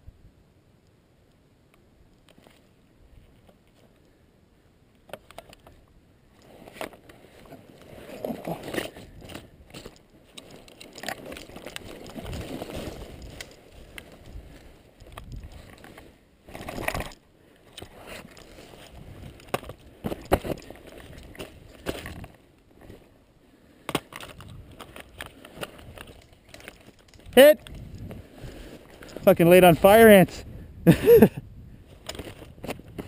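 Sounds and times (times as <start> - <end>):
rustling through long grass: 6.3 - 30.2
gear clicks and knocks: 6.4 - 23.0, 23.9 - 28.2.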